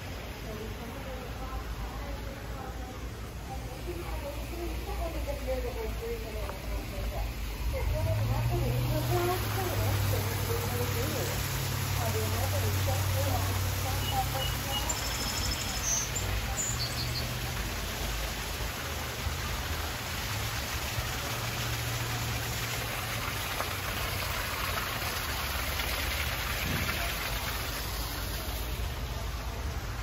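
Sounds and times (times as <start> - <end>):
waterfall pouring into pool: 7.4 - 30.0
high bird chirps: 14.0 - 17.3.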